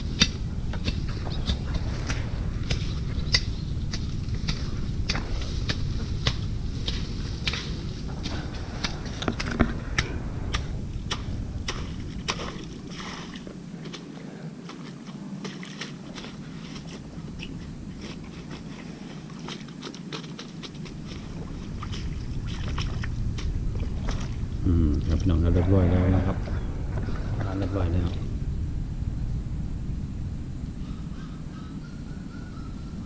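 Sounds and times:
low rumble: 0.0 - 19.8, 20.6 - 33.0
footsteps on dry grass and mud: 0.9 - 24.5.

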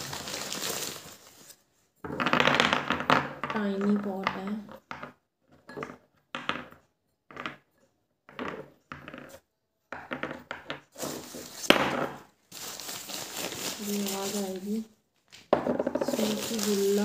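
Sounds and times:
paper packing rustling: 0.0 - 1.6, 12.5 - 14.9, 16.1 - 17.0
clay pots knocking on table: 15.5 - 16.3.

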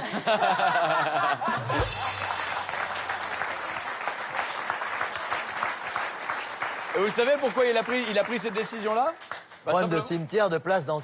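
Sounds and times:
studio audience laughing: 0.0 - 3.2
audience applause: 0.5 - 10.0
background music: 1.4 - 5.2.

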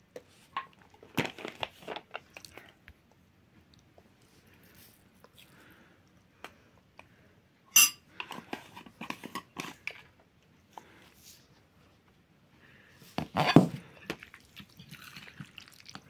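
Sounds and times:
metal spoons clinking on bowls: 7.7 - 8.0.

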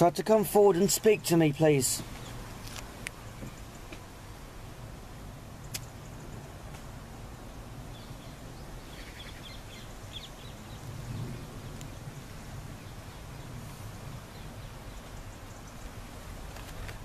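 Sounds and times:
low rumble and hiss: 0.0 - 17.0
sharp click: 5.7 - 5.9.

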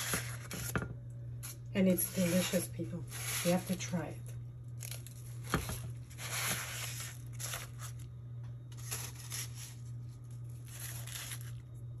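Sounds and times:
low steady hum: 0.0 - 12.0
pastry crackling and tearing: 4.6 - 12.0.

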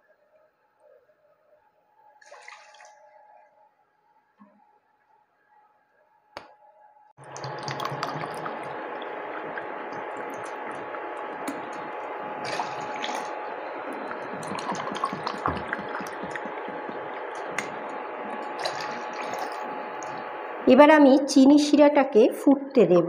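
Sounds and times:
hissing rush with crackles: 7.2 - 20.7.

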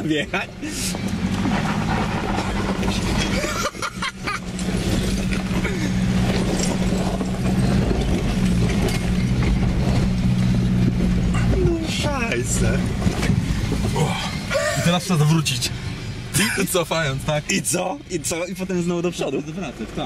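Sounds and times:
diesel engine pulling under load: 0.0 - 20.0
tyres crunching over stones: 0.8 - 15.3.

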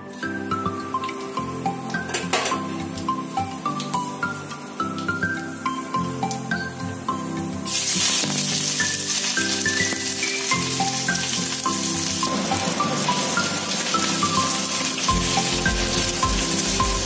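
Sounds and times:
light background music: 0.0 - 17.0
onion sizzling in hot oil: 0.1 - 17.0.

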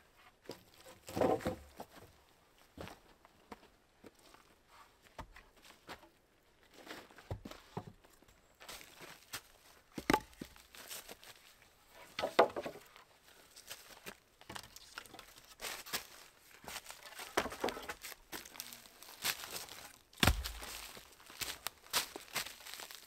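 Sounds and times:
footsteps crunching through dry leaves: 15.5 - 23.0
twigs snapping: 19.3 - 23.0.

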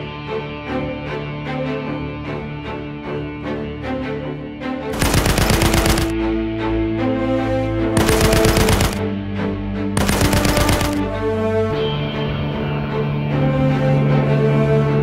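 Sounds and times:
background music sustained notes: 0.0 - 15.0
machine-gun fire: 4.9 - 6.2, 8.0 - 9.2, 10.0 - 11.2.

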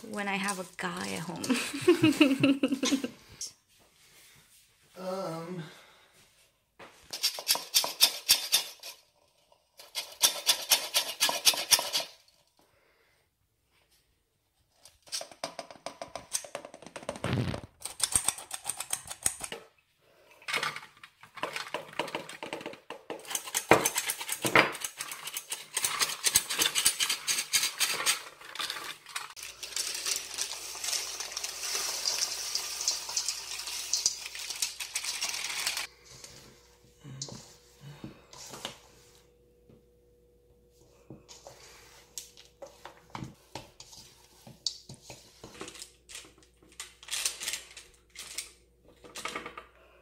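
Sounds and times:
spatula scraping bowl: 9.8 - 12.2
nuts being stirred by hand: 21.4 - 36.3.

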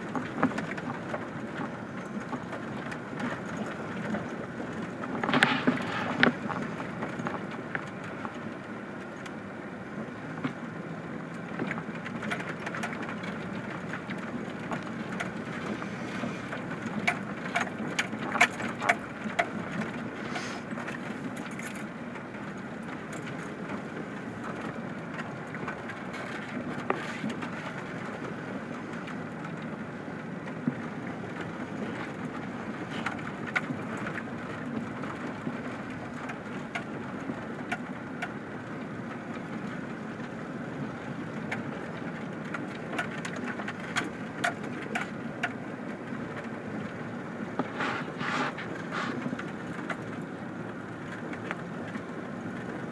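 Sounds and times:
vehicle road and engine noise: 0.0 - 52.9
stones clicking under tyres: 11.3 - 52.9.

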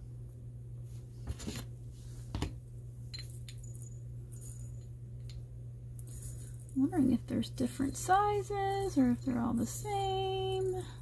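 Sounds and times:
rhinestones clinking on palette: 3.1 - 11.0.

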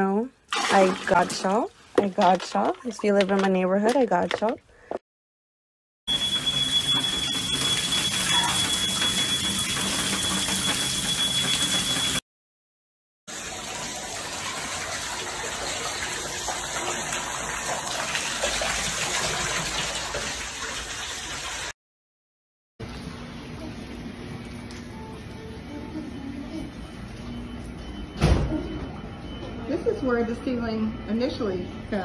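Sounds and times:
water gushing from pipes: 0.4 - 3.6, 6.1 - 12.2, 13.3 - 21.8
high-pitched electronic tone: 6.1 - 12.2.

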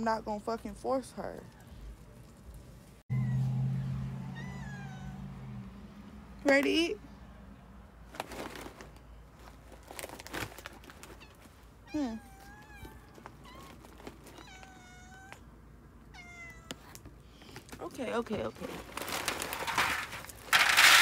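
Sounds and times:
cat meowing: 3.1 - 5.3, 11.1 - 15.5, 16.1 - 17.0.

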